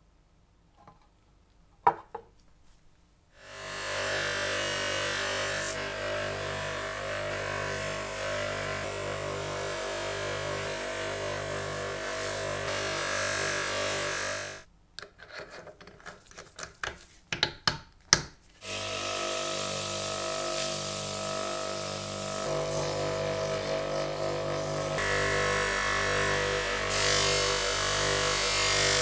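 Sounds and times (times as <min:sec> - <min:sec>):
electric motors running: 0:03.5 - 0:14.7, 0:18.6 - 0:29.0.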